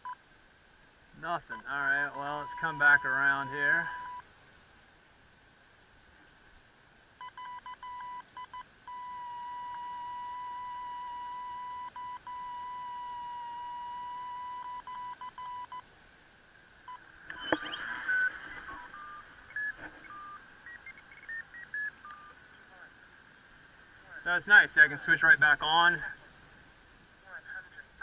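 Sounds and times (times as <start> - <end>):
variometer beeps and tone: 1.5 - 4.2, 7.2 - 15.8, 16.9 - 22.4.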